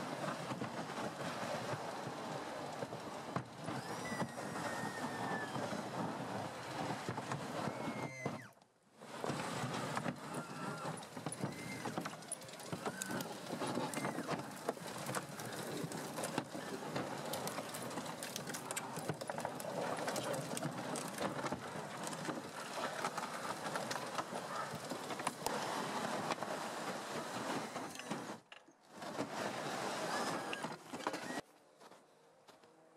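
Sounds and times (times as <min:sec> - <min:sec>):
tracks clattering over brush: 0:00.0 - 0:32.7
branches cracking and snapping: 0:11.0 - 0:25.6.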